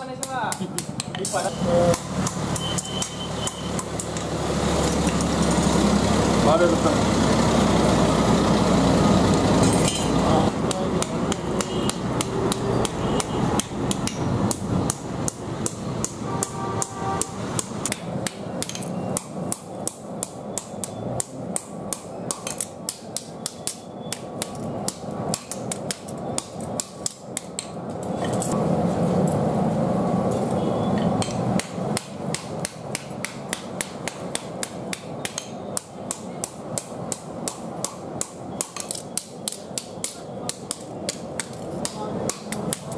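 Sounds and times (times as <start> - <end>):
hammer striking hot metal on anvil: 0.0 - 4.2, 9.6 - 27.8, 31.1 - 42.9.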